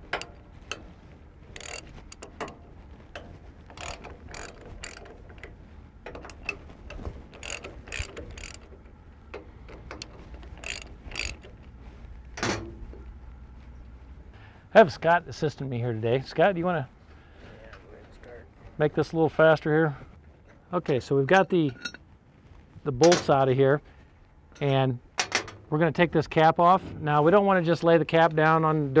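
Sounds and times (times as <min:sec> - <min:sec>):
socket ratchet clicking: 0:01.6 - 0:02.6, 0:03.2 - 0:11.8.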